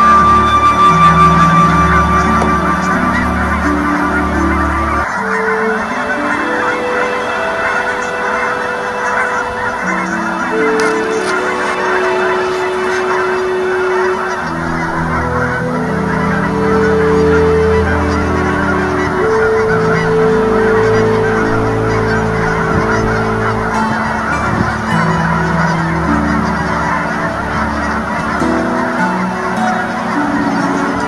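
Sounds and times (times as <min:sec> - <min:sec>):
geese honking: 0:00.0 - 0:31.0
low held synth tones: 0:00.0 - 0:31.0.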